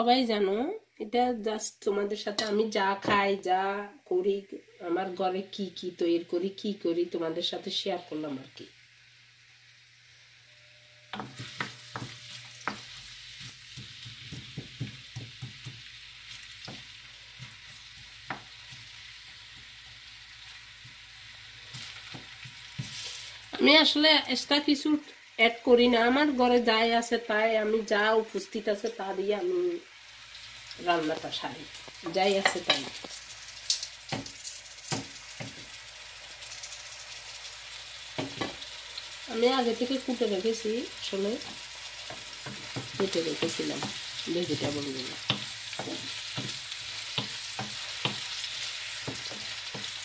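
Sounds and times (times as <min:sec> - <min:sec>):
onion sizzling in hot oil: 0:01.2 - 0:50.0
wooden spatula knocking on pan: 0:11.2 - 0:12.9, 0:13.8 - 0:15.9, 0:38.2 - 0:38.6, 0:42.1 - 0:48.3, 0:49.0 - 0:50.0.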